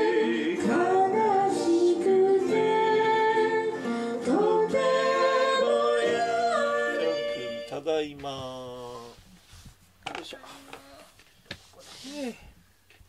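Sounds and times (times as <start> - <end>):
person singing: 0.0 - 7.8
acoustic guitar: 0.0 - 13.0.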